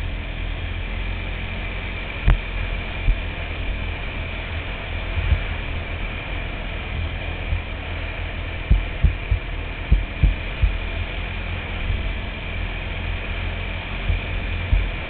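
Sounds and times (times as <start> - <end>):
quad bike engine rumbling: 0.0 - 15.0
low thumps: 8.6 - 11.0, 14.1 - 15.0.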